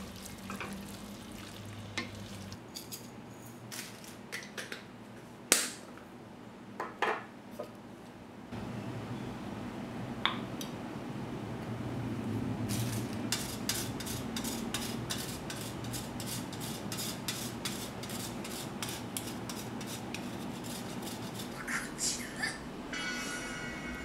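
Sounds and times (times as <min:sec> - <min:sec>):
cheese grating: 0:13.3 - 0:21.6.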